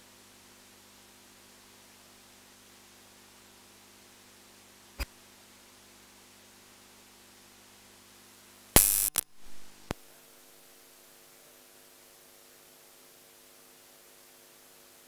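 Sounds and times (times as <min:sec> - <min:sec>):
room hiss and hum: 0:00.0 - 0:15.0
sharp click: 0:08.8 - 0:10.0.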